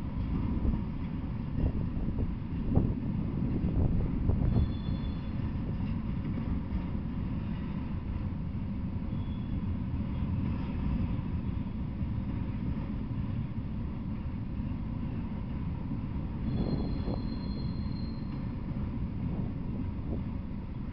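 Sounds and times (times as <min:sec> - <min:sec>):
train wheels rumbling on rails: 0:00.0 - 0:20.9
faint high wheel squeal: 0:04.4 - 0:05.6, 0:09.0 - 0:10.4, 0:11.4 - 0:11.8, 0:16.4 - 0:18.7.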